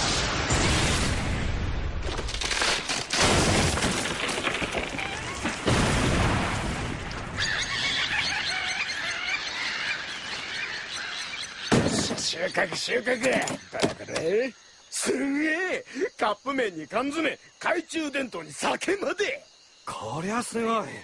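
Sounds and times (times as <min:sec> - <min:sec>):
bomb explosion: 0:00.0 - 0:02.2, 0:03.2 - 0:07.4.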